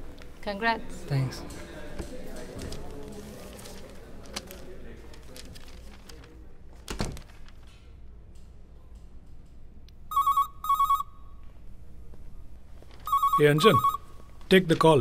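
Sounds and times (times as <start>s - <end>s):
phone ringing electronic ringtone: 10.1s - 11.3s, 13.0s - 14.2s.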